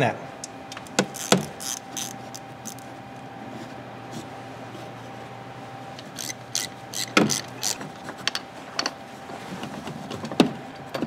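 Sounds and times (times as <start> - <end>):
ratchet wrench clicking: 1.1 - 2.8, 6.2 - 7.8.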